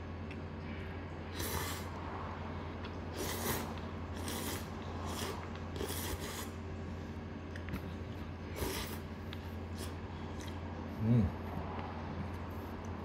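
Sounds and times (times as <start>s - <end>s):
steady low hum: 0.0s - 13.0s
noodles being slurped: 1.3s - 2.0s, 3.0s - 6.6s.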